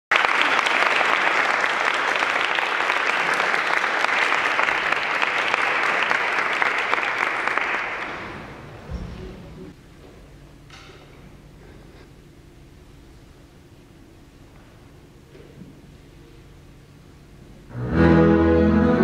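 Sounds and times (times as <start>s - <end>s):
audience applauding: 0.1s - 8.7s.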